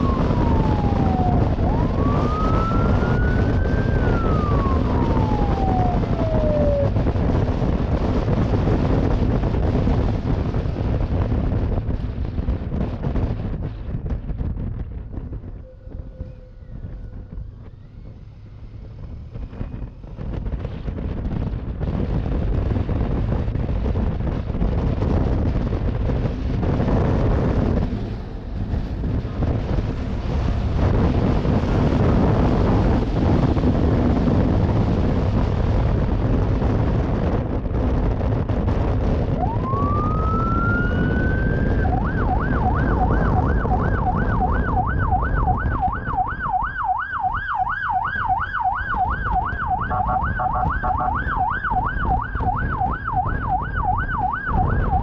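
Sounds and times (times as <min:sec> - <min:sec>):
police siren wailing and yelping: 0:00.0 - 0:07.2, 0:39.3 - 0:55.0
road and engine noise: 0:00.0 - 0:55.0
wind rushing over microphone: 0:00.0 - 0:55.0.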